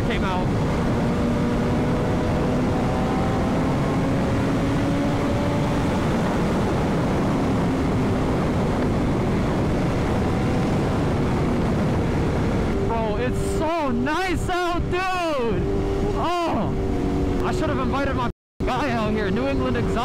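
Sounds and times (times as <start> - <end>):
motorcycle engine drone: 0.0 - 20.0
wind noise rushing: 0.0 - 20.0.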